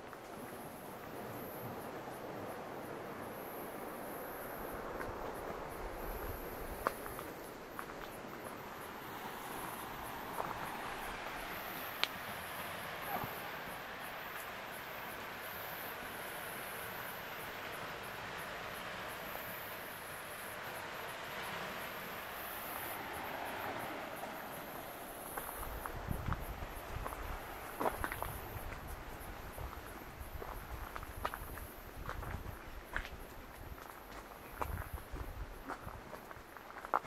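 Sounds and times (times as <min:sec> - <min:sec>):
insects chirping: 0:00.0 - 0:37.0
outdoor background hiss: 0:00.0 - 0:37.0.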